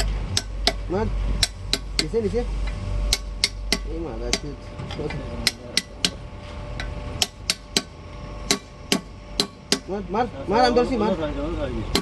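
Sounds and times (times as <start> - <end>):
hammer striking steel drift: 0.0 - 2.2, 3.0 - 4.6, 6.8 - 10.0.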